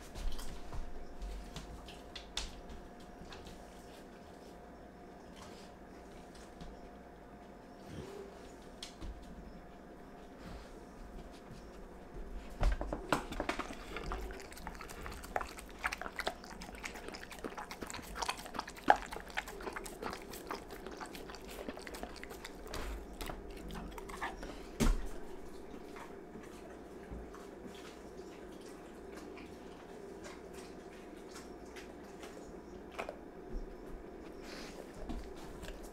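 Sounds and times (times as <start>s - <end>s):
dog licking and chewing food: 12.6s - 35.9s.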